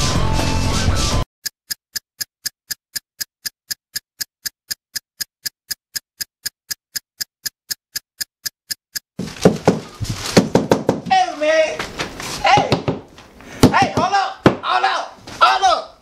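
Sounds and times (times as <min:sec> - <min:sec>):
clock ticking: 0:01.4 - 0:09.2.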